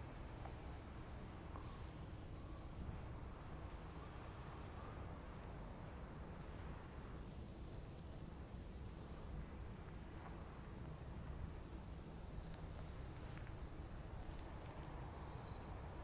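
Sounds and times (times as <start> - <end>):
faint insect chirping: 0.0 - 16.0.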